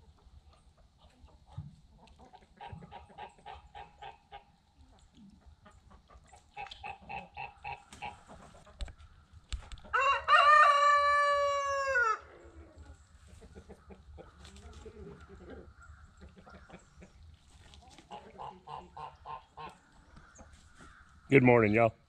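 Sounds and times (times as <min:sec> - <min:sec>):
chickens clucking: 0:00.0 - 0:21.3
rooster crowing: 0:09.9 - 0:12.3.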